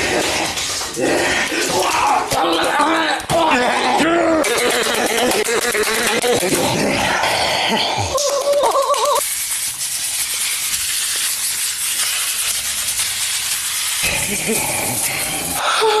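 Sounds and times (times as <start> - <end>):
sprinkles pouring onto bread: 9.2 - 15.6.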